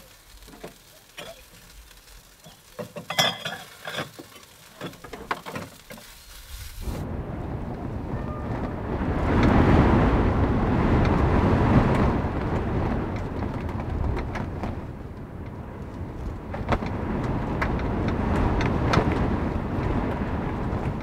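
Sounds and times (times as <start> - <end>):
raindrops ticking: 0.0 - 6.1, 10.9 - 21.0
rolling thunder: 7.0 - 21.0.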